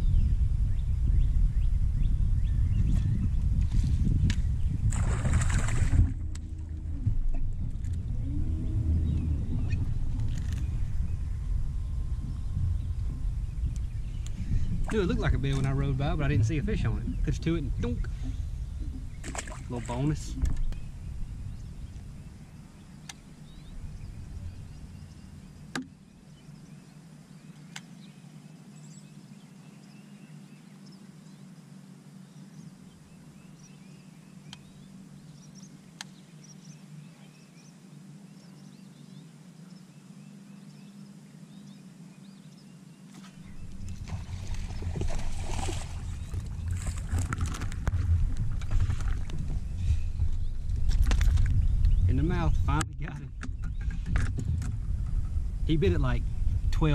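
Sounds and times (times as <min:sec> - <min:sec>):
steady low hum: 0:00.0 - 0:56.9
water splashing: 0:04.8 - 0:13.4, 0:14.3 - 0:20.8, 0:43.1 - 0:50.3.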